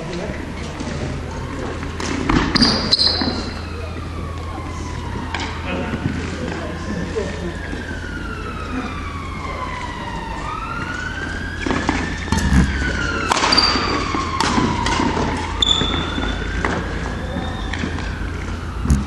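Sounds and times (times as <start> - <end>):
shoe squeaks: 2.4 - 3.7, 15.6 - 17.9
siren wailing: 2.5 - 19.0.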